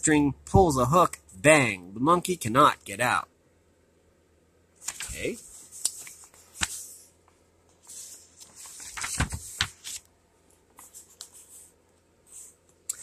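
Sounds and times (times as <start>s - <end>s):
paper pages rustling: 4.8s - 7.1s, 7.7s - 10.1s.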